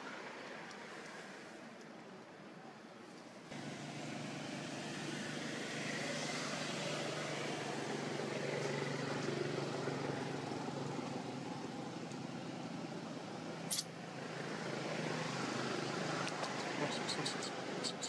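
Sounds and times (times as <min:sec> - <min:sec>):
outdoor background noise: 0:00.0 - 0:18.0
sharp high-pitched chirp: 0:13.7 - 0:13.9.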